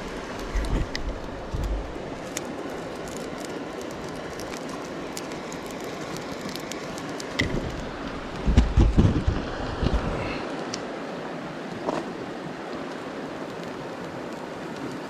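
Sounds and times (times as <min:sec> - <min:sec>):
river rushing over gravel: 0:00.0 - 0:15.0
wind buffeting microphone: 0:06.4 - 0:10.6.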